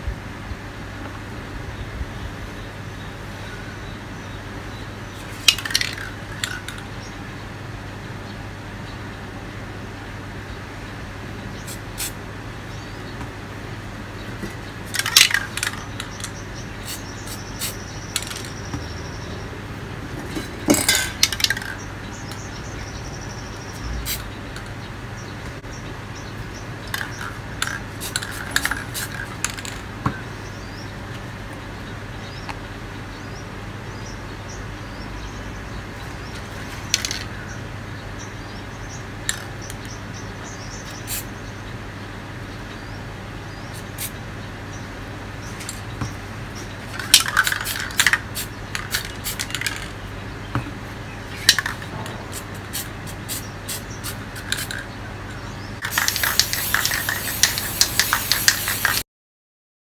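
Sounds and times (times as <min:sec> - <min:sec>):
spray cans and tools clinking: 0:05.3 - 0:06.8, 0:14.4 - 0:18.8, 0:20.2 - 0:21.8, 0:26.9 - 0:29.8, 0:46.9 - 0:50.0, 0:51.4 - 0:54.9, 0:55.8 - 0:59.0.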